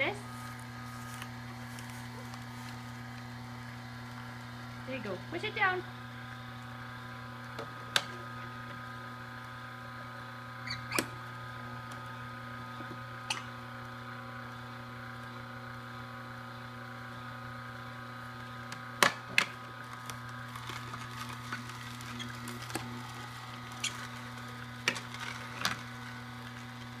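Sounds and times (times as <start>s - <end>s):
juicer motor humming: 0.0s - 27.0s.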